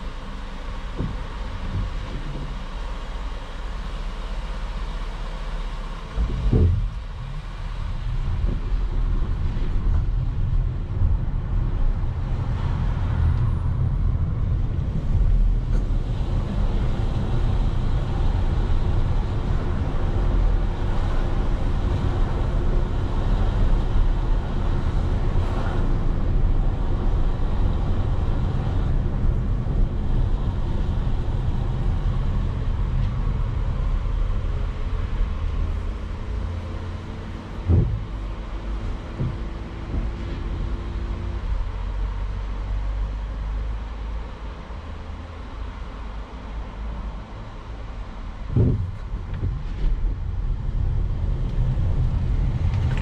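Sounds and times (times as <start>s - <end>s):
engine and road rumble: 0.0s - 53.0s
vehicle thump: 0.9s - 2.6s, 6.1s - 7.3s, 37.5s - 40.6s, 48.5s - 50.1s.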